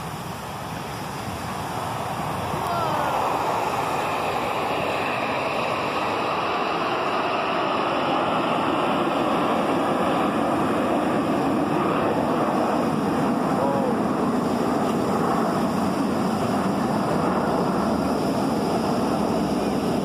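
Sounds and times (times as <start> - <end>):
jets flying roar: 0.0 - 20.0
wind on microphone: 0.0 - 20.0
breaking surf: 1.1 - 8.1.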